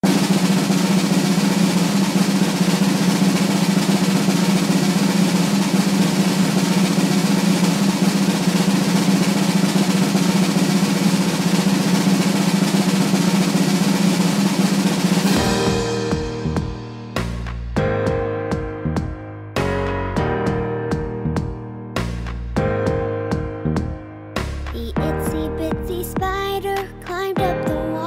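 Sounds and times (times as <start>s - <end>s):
snare drum roll: 0.0s - 18.2s, 22.0s - 22.5s, 24.4s - 26.2s.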